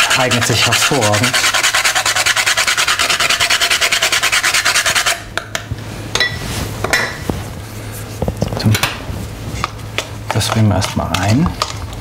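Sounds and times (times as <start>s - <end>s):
nutmeg rasping on hand grater: 0.0s - 5.2s.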